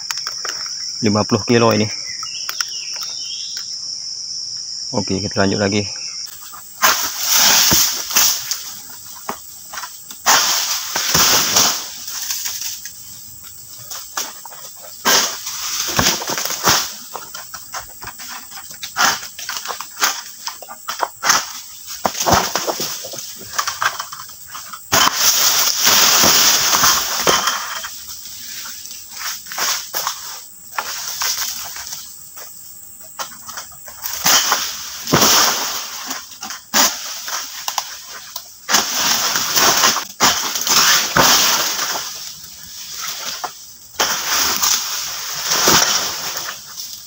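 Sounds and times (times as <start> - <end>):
palm fronds rustling and crashing: 6.3 - 32.5, 33.2 - 47.0.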